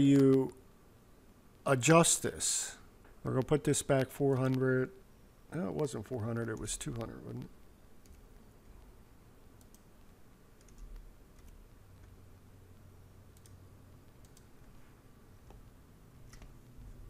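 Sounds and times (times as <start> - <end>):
low steady hum: 0.0 - 17.0
keyboard and mouse clicks: 0.1 - 0.4, 8.0 - 8.9, 9.6 - 12.2, 13.3 - 14.8, 16.2 - 16.7.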